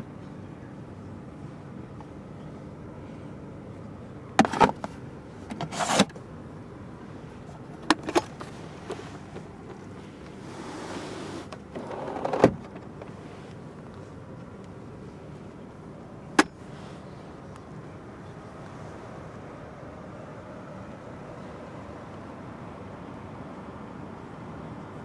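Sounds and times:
plastic clatter: 4.4s - 6.1s, 7.8s - 8.5s
short sliding sound: 5.6s - 6.1s.

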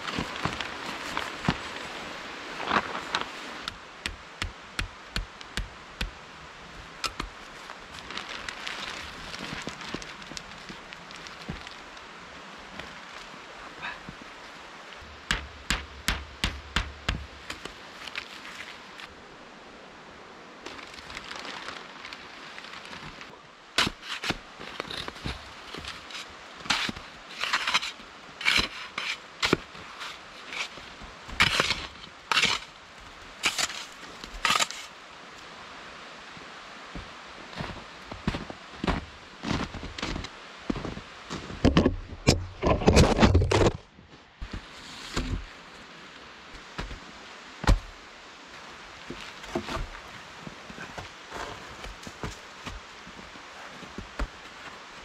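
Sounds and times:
footsteps crunching in snow: 0.0s - 3.6s, 7.4s - 12.0s, 36.9s - 41.6s, 49.0s - 55.0s
faint steady hiss: 0.0s - 42.3s, 43.8s - 55.0s.

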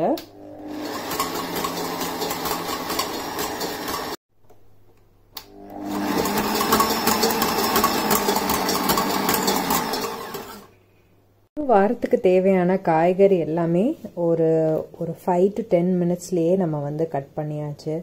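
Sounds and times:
kitchen mixer motor running: 0.3s - 4.2s, 5.5s - 10.7s.

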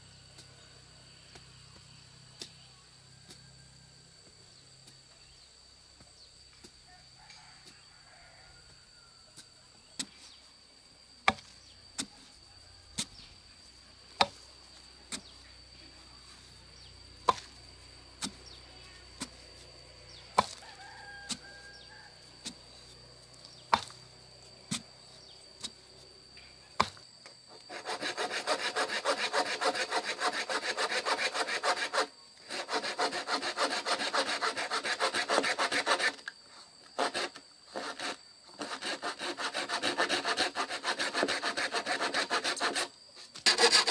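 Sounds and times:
spade chopping into hard soil: 11.3s - 12.1s, 14.2s - 14.4s, 17.2s - 17.5s, 20.3s - 20.6s, 23.7s - 24.0s, 26.8s - 27.0s
handsaw cutting bamboo: 26.8s - 36.3s, 37.0s - 43.9s.

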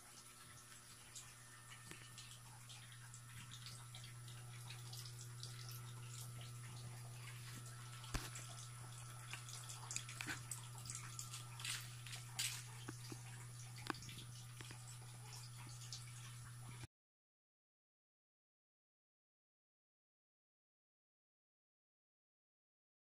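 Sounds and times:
faint ticks and clicks: 0.0s - 16.9s
low steady hum: 0.0s - 16.9s.

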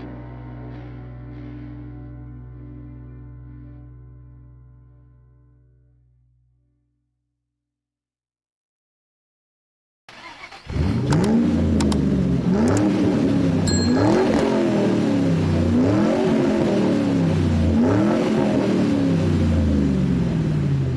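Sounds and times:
car engine revving: 10.2s - 20.9s
short clicks: 11.1s - 12.0s.

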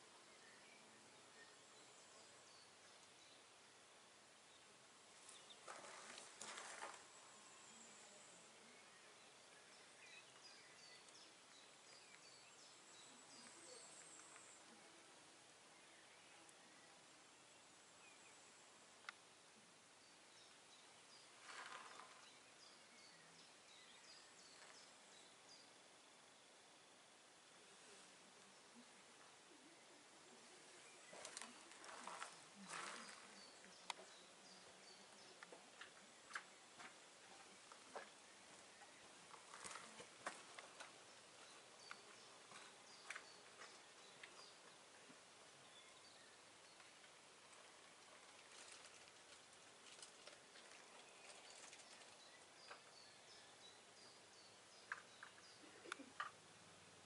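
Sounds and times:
brief rustle: 5.2s - 7.1s
footsteps on woodland path: 5.2s - 7.1s, 31.0s - 34.2s
small bird chirping: 28.5s - 56.6s.

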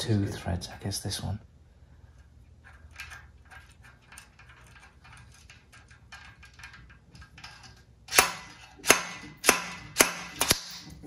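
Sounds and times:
faint metallic clicks and scrapes: 2.1s - 7.9s.

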